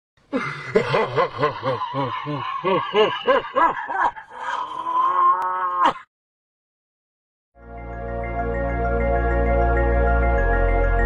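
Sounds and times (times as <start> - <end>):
man laughing: 0.3 - 4.4.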